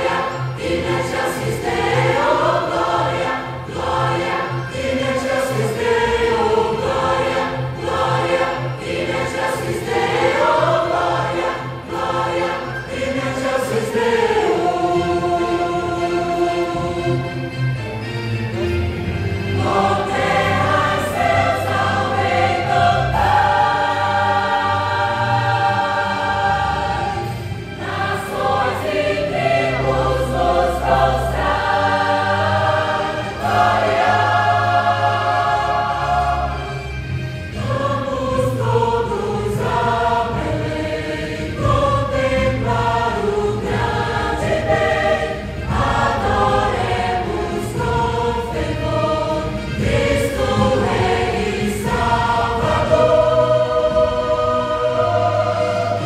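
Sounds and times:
church choir singing: 0.0 - 56.0
instrumental accompaniment: 0.0 - 56.0.

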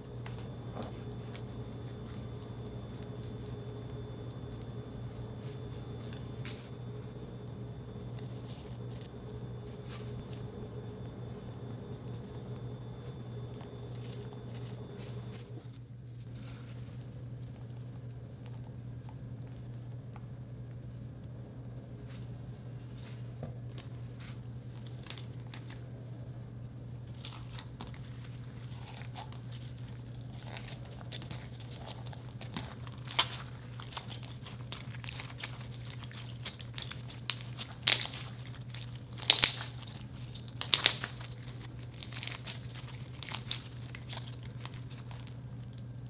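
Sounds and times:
hands kneading crunchy slime: 0.0 - 20.1, 22.0 - 26.1, 27.0 - 46.0
steady low hum: 0.0 - 46.0
slime popping: 30.4 - 45.3.

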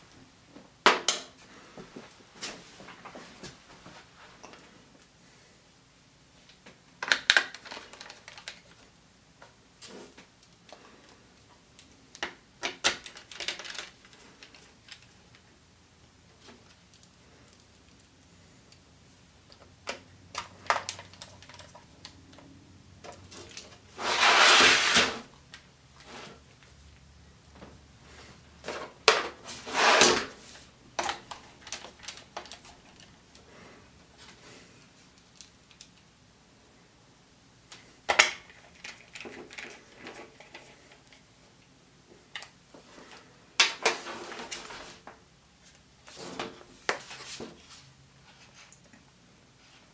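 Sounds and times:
laptop scraping on desk: 23.9 - 25.3, 29.5 - 30.5.

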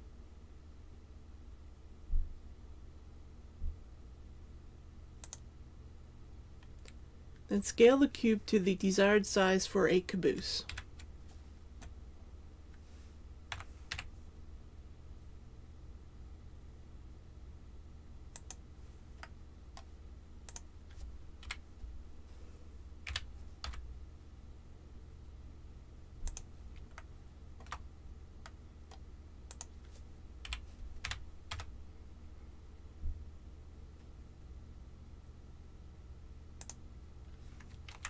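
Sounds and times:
faint low hum: 0.0 - 38.0
keyboard and mouse clicks: 5.2 - 5.4, 18.3 - 18.6, 19.2 - 21.6, 26.2 - 27.8, 28.4 - 31.7, 36.6 - 36.8.

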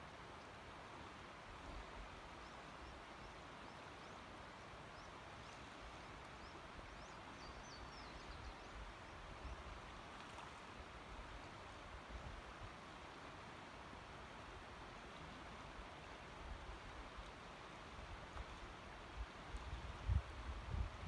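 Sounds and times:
creek water running over riffle: 9.2 - 21.0.

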